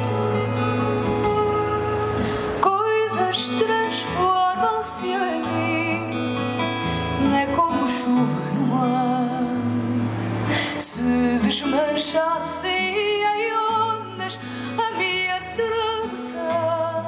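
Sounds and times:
bass: 0:00.0 - 0:12.8
acoustic guitar: 0:00.0 - 0:17.0
woman singing into microphone: 0:02.2 - 0:17.0.

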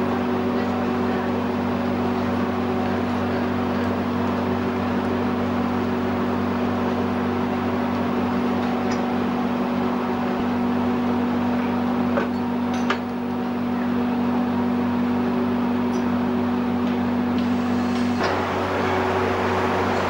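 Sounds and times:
foundry machinery humming: 0:00.0 - 0:20.0.

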